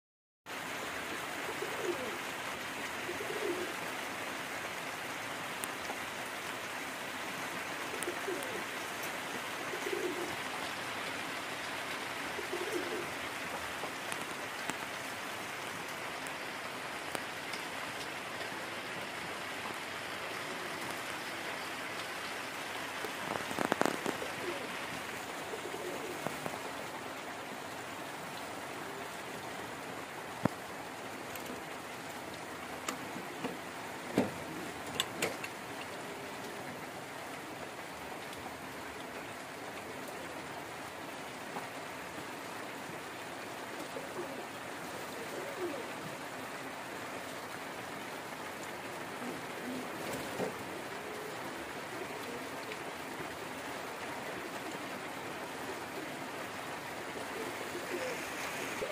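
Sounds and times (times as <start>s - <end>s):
rustle: 0.5s - 58.9s
steady hiss: 0.5s - 58.9s
pigeon cooing: 1.4s - 2.3s, 3.0s - 3.8s, 7.8s - 10.7s, 12.2s - 13.2s, 20.3s - 21.7s, 23.0s - 26.6s, 43.8s - 46.6s, 49.0s - 56.3s, 57.0s - 58.9s.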